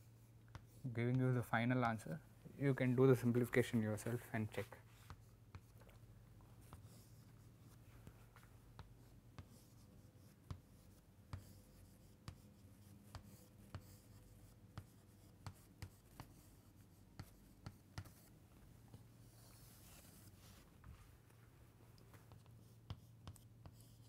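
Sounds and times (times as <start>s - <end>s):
chalk tapping on chalkboard: 0.5s - 1.2s, 8.0s - 18.3s, 22.2s - 24.0s.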